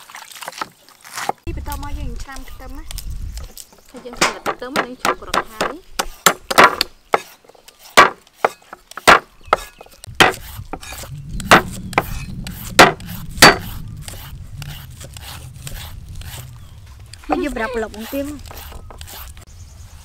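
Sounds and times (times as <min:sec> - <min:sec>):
knife chopping on wooden board: 0:04.3 - 0:13.8.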